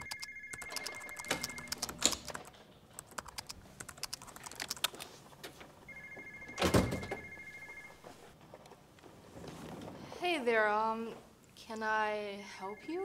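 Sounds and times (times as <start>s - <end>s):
telephone ringing: 0.0s - 2.4s, 5.9s - 8.3s, 12.4s - 13.0s
computer keyboard typing: 0.0s - 5.0s.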